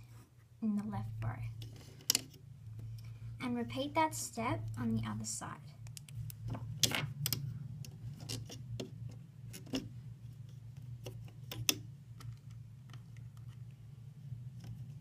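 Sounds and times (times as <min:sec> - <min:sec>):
steady low hum: 0:00.0 - 0:15.0
rubber bands clicking on pegs: 0:11.0 - 0:13.4.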